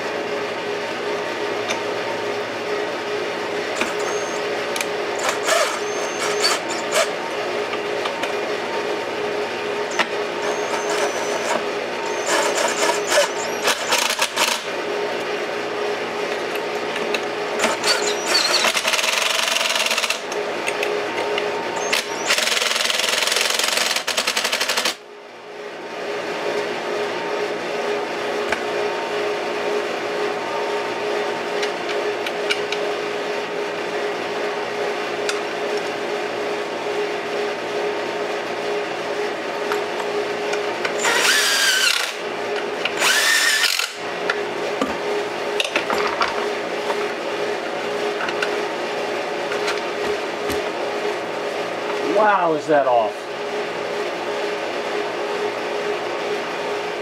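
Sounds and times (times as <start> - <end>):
steady hum: 0.0 - 57.0
cordless drill driving screws: 5.2 - 7.1, 10.4 - 14.6, 17.6 - 20.2, 41.0 - 42.2, 43.0 - 44.0.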